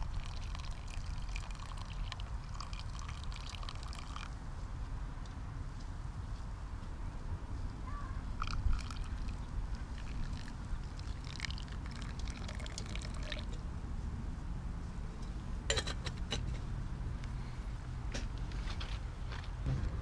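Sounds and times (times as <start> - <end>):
water trickling and dripping: 0.0 - 4.4, 8.4 - 13.6
low rumble: 19.6 - 20.0.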